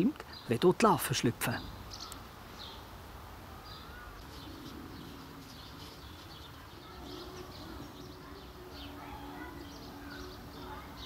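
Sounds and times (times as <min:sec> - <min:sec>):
small birds chirping: 0:00.0 - 0:11.0
dove cooing: 0:03.9 - 0:11.0.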